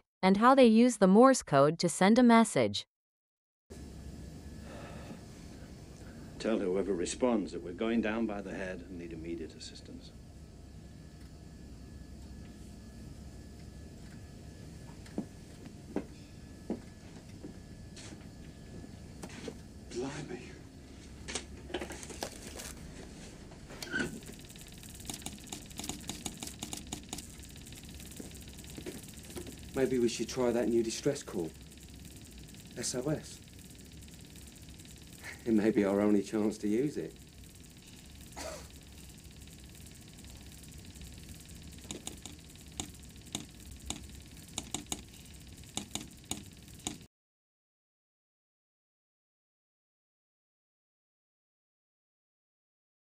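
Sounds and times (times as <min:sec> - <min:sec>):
low hum: 0:03.7 - 0:47.1
telegraph key tapping: 0:25.0 - 0:27.3, 0:41.8 - 0:45.1, 0:45.7 - 0:47.0
telegraph key clicking: 0:44.6 - 0:45.0, 0:45.7 - 0:47.0.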